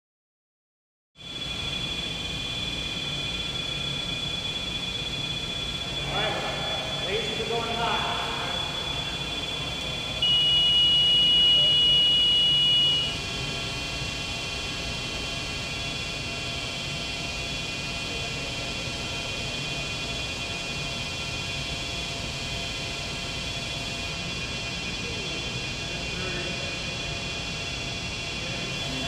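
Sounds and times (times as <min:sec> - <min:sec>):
faint high whines: 0:01.2 - 0:29.0
air handling hum: 0:01.4 - 0:29.0
high warning buzzer tone: 0:07.1 - 0:15.2.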